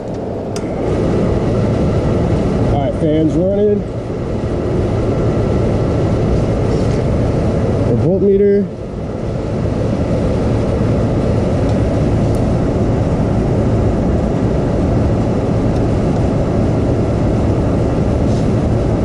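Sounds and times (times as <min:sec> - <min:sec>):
furnace blower fan humming: 0:00.0 - 0:19.0.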